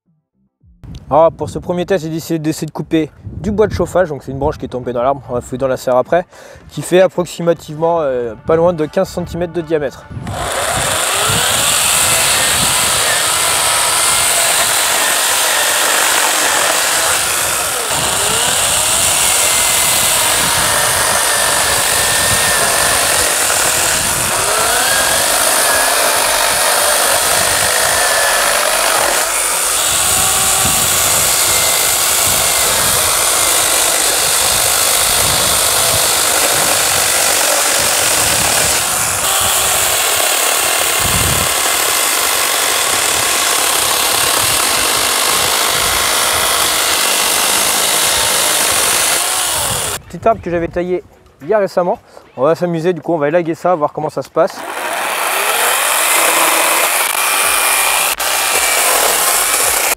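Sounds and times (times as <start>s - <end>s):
chainsaw cutting branch: 10.3s - 50.0s, 54.6s - 59.9s.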